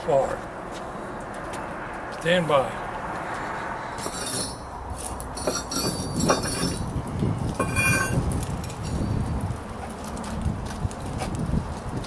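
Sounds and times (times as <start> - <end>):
metallic clinking and jingling: 4.0 - 6.9, 7.6 - 9.2.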